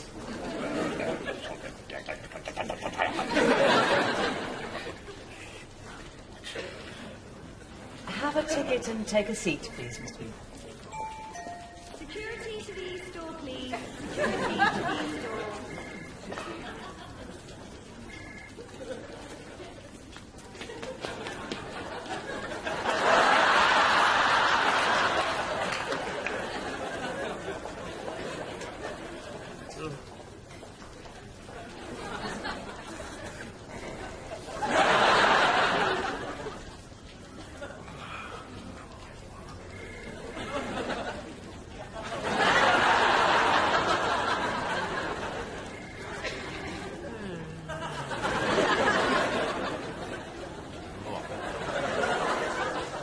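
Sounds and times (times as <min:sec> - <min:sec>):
audience laughter: 0:00.2 - 0:05.6, 0:13.7 - 0:17.8, 0:20.6 - 0:29.7, 0:31.5 - 0:36.8, 0:40.1 - 0:53.0
person mumbling: 0:47.0 - 0:48.0.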